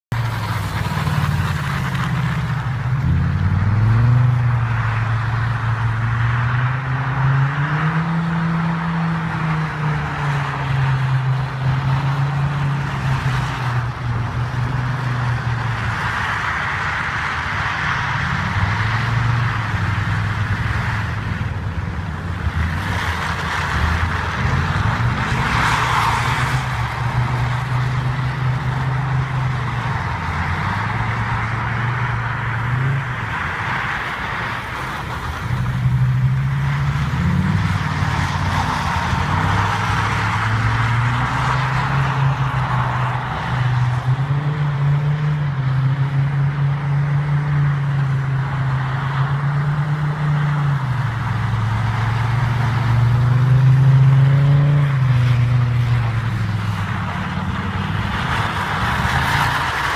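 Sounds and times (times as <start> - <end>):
car engine revving: 0.1 - 59.9
tyres spinning in snow: 0.2 - 5.0.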